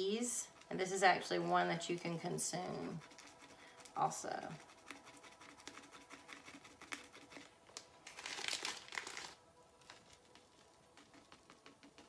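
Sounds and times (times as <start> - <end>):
plastic bag crinkling: 6.8 - 11.6.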